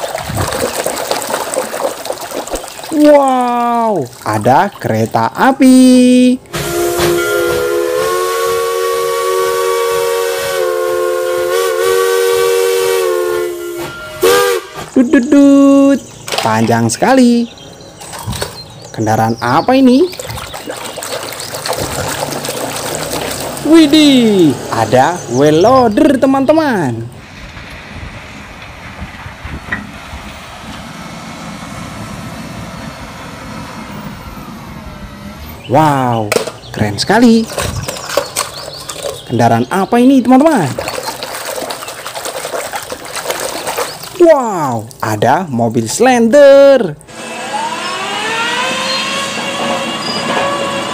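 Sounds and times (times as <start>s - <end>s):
steam locomotive chime whistle: 6.5s - 14.9s, 47.1s - 50.9s
wheel loader diesel engine: 22.2s - 25.8s, 27.1s - 36.7s, 47.0s - 50.9s
steam hissing: 47.1s - 50.9s.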